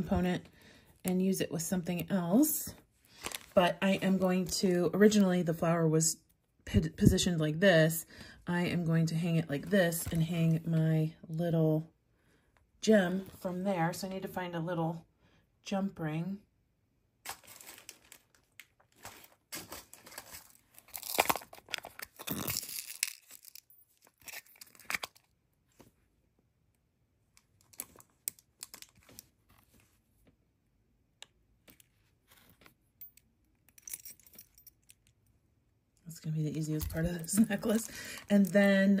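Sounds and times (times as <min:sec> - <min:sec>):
plastic packaging rustling: 0:03.1 - 0:03.6, 0:17.2 - 0:25.8, 0:27.6 - 0:30.0.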